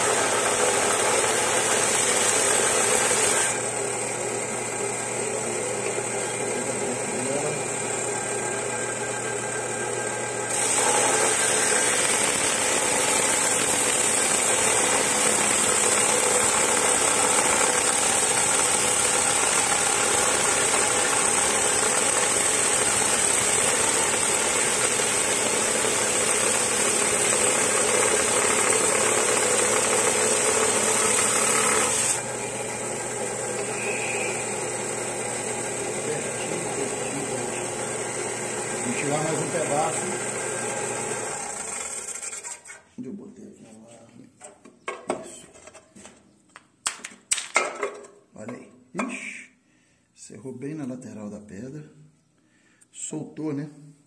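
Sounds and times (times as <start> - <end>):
saw grinding into crystal: 0.0 - 3.8, 10.5 - 32.3, 33.4 - 42.9
saw running free: 0.0 - 42.9.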